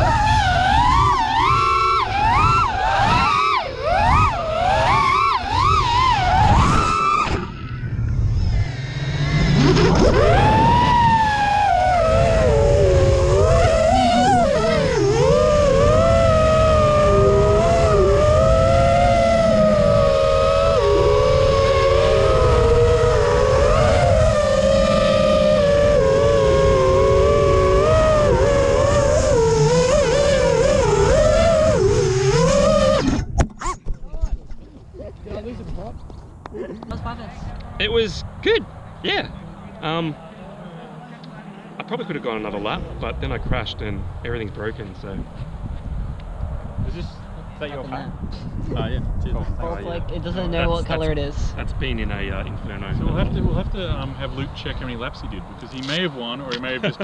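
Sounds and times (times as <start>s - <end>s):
quadcopter motors whining: 0.0s - 33.4s, 48.7s - 57.0s
wind rushing across microphone: 0.0s - 40.2s, 42.2s - 57.0s.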